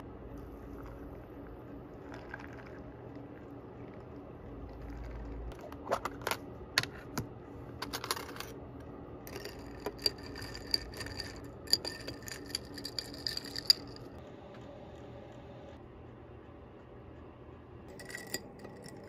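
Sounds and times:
glass straw clinking in glass: 9.3s - 14.1s, 17.9s - 19.0s.

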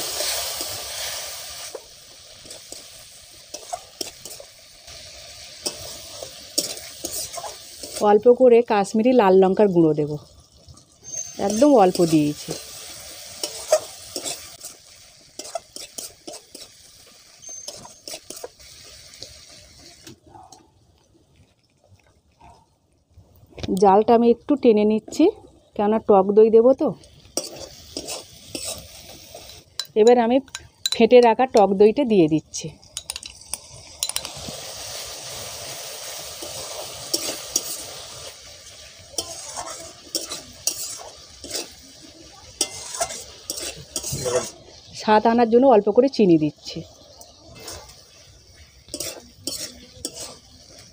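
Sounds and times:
metal spatula scraping a pan: 0.0s - 8.1s, 11.0s - 19.4s, 27.4s - 29.6s, 36.3s - 44.8s, 47.5s - 50.9s
yogurt sizzling in hot oil: 0.0s - 22.4s, 23.0s - 50.9s.

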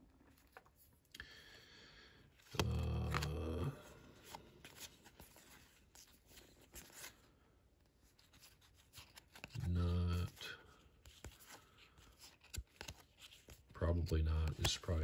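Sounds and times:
trading cards flipped by hand: 2.4s - 3.6s, 4.2s - 7.2s, 8.0s - 10.4s, 11.0s - 13.8s, 14.4s - 15.0s.

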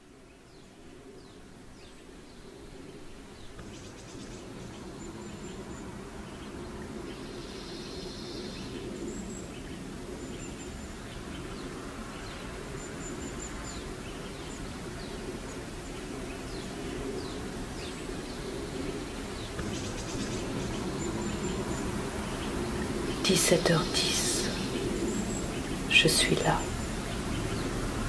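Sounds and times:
birds chirping: 0.0s - 28.0s
low background noise: 0.0s - 28.0s.

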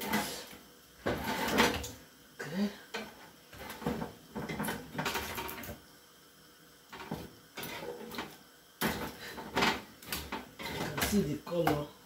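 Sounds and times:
utensils scraping wire rack: 1.1s - 1.9s, 8.8s - 11.3s.

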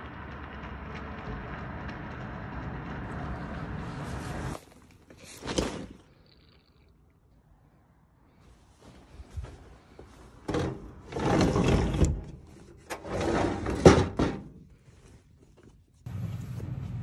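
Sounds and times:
sliding window rolling: 11.0s - 12.3s, 12.9s - 13.9s.

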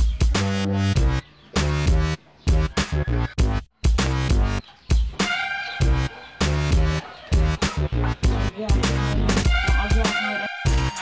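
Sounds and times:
electronic dance music: 5.2s - 11.0s.

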